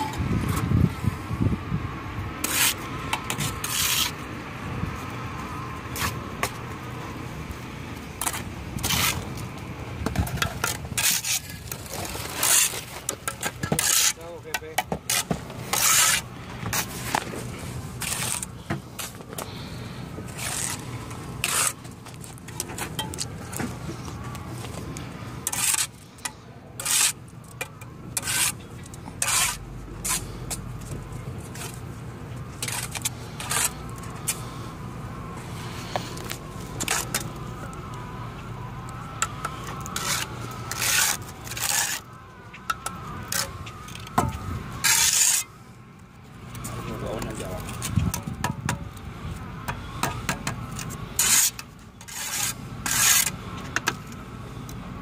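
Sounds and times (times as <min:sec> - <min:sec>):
trowel scraping and slapping mortar: 0:02.4 - 0:04.2, 0:08.2 - 0:09.4, 0:10.1 - 0:19.6, 0:20.2 - 0:31.8, 0:32.6 - 0:34.5, 0:35.8 - 0:37.4, 0:39.2 - 0:45.5, 0:49.7 - 0:54.2.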